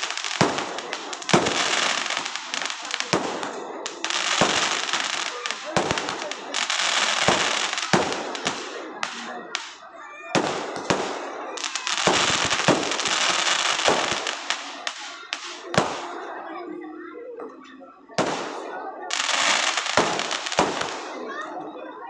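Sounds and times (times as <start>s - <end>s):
crackling hiss of sparks: 0.0s - 9.8s, 19.1s - 20.9s.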